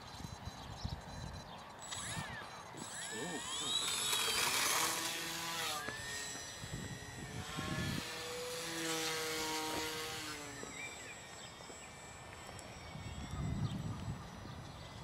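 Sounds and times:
electric model plane motor whining: 1.1s - 15.0s
wind buffeting microphone: 6.4s - 8.4s, 12.3s - 15.0s.

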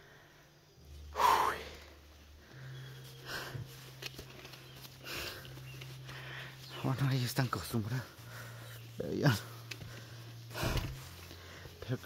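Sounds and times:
man breathing hard: 0.0s - 4.0s, 5.0s - 6.6s.

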